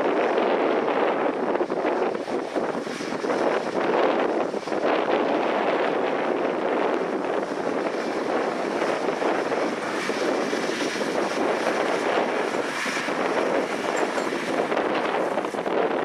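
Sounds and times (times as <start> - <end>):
tractor diesel engine droning: 7.1 - 15.7.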